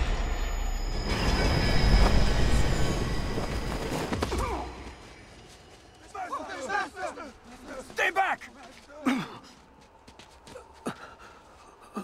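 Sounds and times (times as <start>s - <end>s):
train rumbling past: 0.0s - 6.8s.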